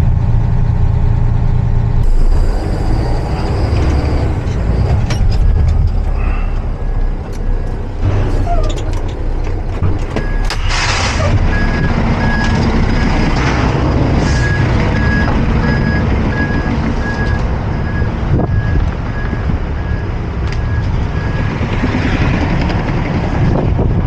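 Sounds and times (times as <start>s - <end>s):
diesel engine running: 0.0s - 24.0s
truck warning beeper: 2.0s - 8.9s, 10.1s - 13.3s, 14.3s - 21.6s.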